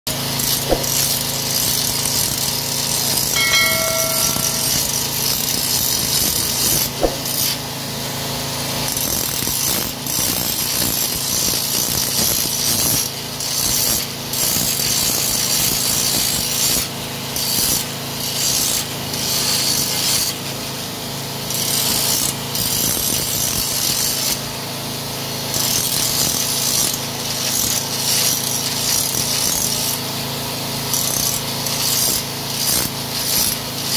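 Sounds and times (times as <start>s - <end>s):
grinding disc on steel blades: 3.4s - 5.3s.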